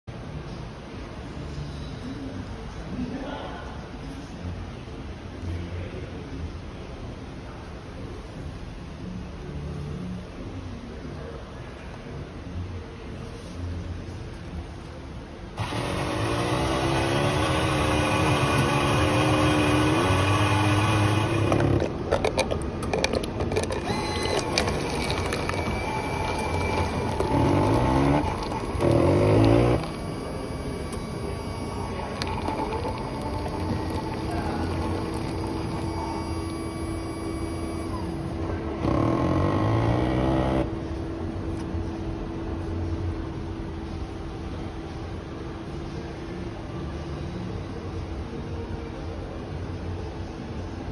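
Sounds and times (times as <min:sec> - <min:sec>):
coffee sputtering into cup: 0:15.6 - 0:38.0
coffee machine humming: 0:15.6 - 0:42.5.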